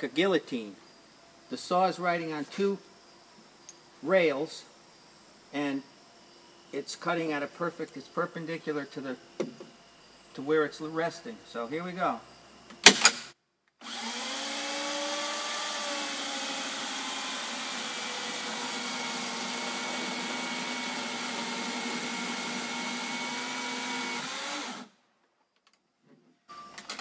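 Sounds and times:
electric chainsaw cutting timber: 13.8 - 24.9.

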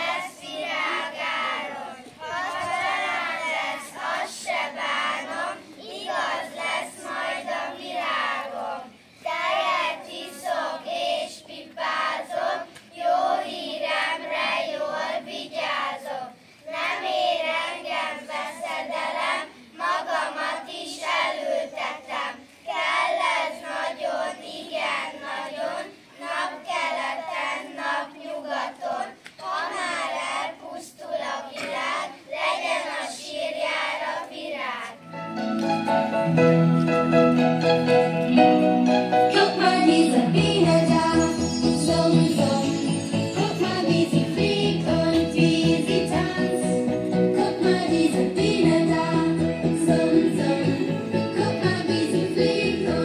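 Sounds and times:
children singing: 0.0 - 16.2, 39.2 - 53.0.

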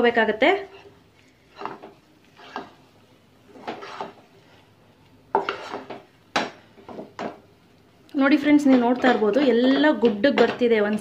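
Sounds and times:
spatula scraping dough in pot: 0.4 - 7.3, 8.4 - 11.0.

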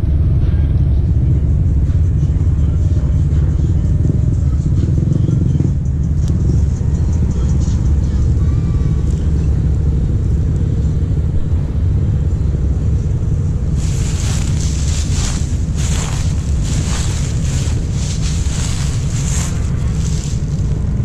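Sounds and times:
wind buffeting microphone: 11.2 - 21.0
footsteps crunching dry leaves: 13.6 - 21.0.

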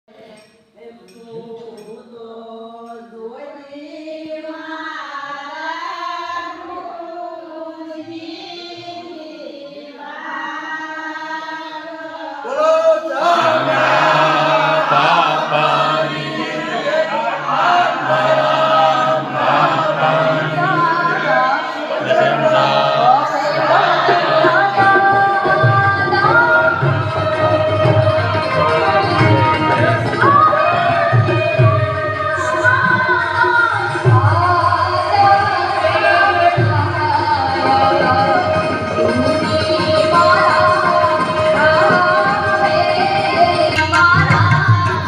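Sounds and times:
group devotional chanting: 0.1 - 45.0.

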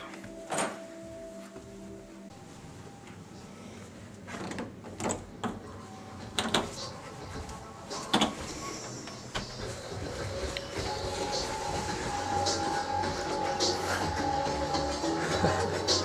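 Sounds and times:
door opening: 0.0 - 0.8, 7.9 - 9.9
footsteps going down stairs: 0.0 - 3.2, 6.3 - 16.0.

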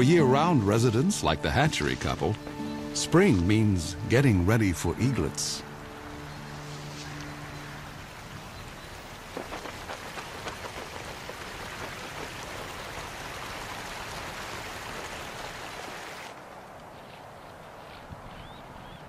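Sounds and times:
running water rushing: 0.0 - 16.4
water splashes: 5.6 - 16.4.

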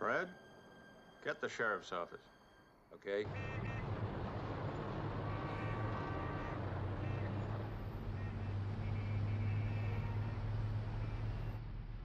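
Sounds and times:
car horns honking: 3.2 - 4.1, 5.0 - 11.5
car engine rumbling: 3.2 - 12.0.

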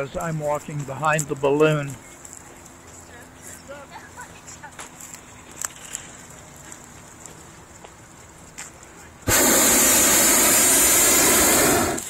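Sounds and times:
propane burner roaring: 5.6 - 12.0.

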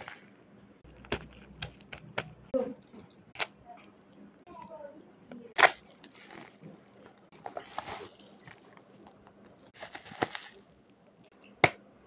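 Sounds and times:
bubble wrap crinkling: 0.0 - 3.5, 5.5 - 10.7
bubble wrap sharp snap: 5.6 - 6.4, 9.8 - 10.6.

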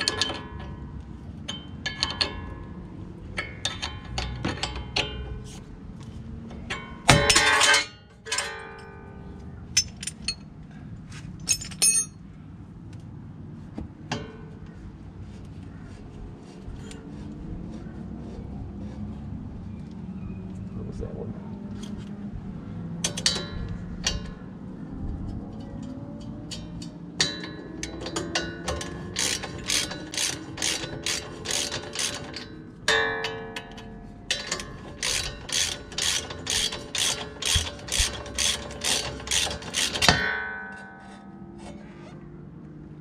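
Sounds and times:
short metallic rings: 6.6 - 10.6, 11.4 - 12.2, 23.0 - 24.4, 25.5 - 42.2
hand ratchet clicking: 26.5 - 32.6, 34.3 - 40.2.

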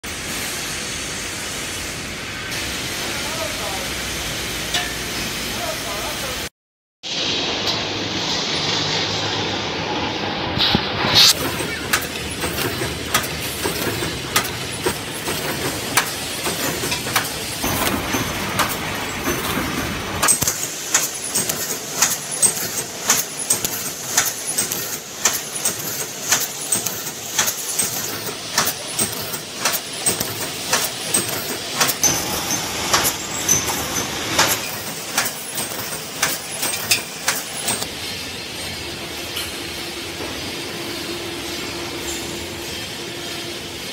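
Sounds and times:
machine hissing: 0.0 - 6.5, 7.1 - 43.9
welding machine clanking: 4.5 - 5.4, 10.6 - 43.9.

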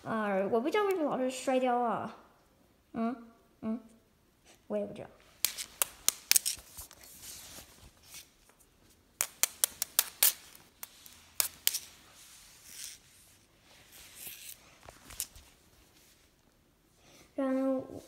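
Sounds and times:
soft rubbing and rustling: 5.2 - 16.6.

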